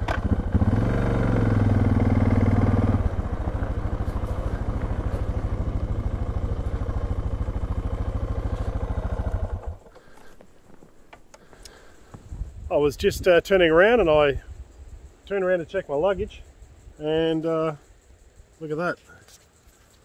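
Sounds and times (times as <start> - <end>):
motorcycle engine idling: 0.0 - 10.8.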